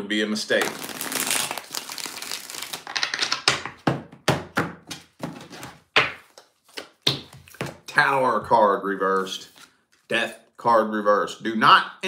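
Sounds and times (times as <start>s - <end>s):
cards rustling while shuffled: 0.6s - 3.6s
cards slapping and clicking: 0.6s - 3.8s.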